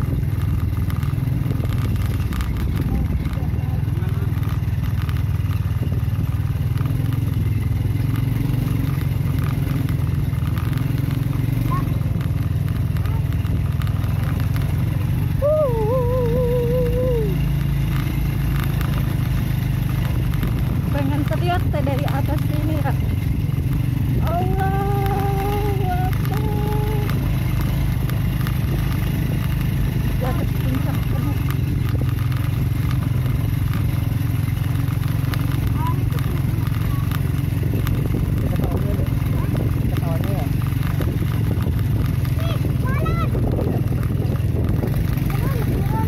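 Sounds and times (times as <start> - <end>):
small motorcycle engine: 0.0 - 46.0
stones and bike rattling: 0.0 - 46.0
stones clicking: 17.4 - 24.1, 24.9 - 38.6.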